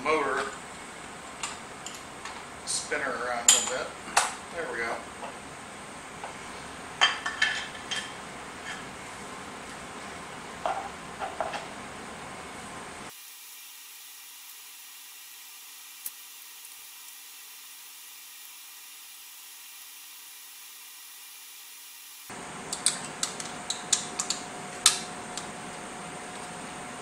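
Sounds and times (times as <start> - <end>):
thin hiss: 13.1 - 22.3.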